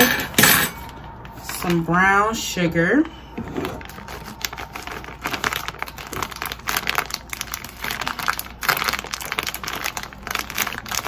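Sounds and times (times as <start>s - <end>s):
plastic bag crinkling: 3.4s - 11.0s.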